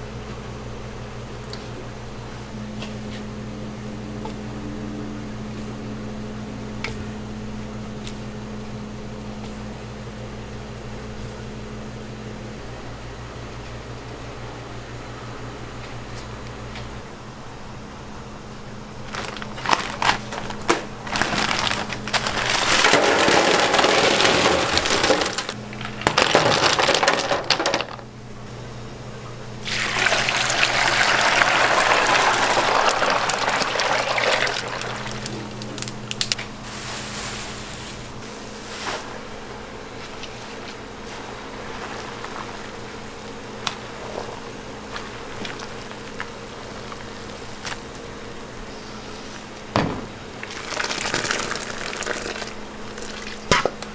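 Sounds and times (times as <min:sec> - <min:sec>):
low hum: 0:02.0 - 0:13.0
ice cubes poured into metal tub: 0:21.2 - 0:28.0, 0:29.7 - 0:35.3, 0:50.4 - 0:52.5
water boiling in a pot: 0:29.6 - 0:35.9, 0:50.4 - 0:53.9.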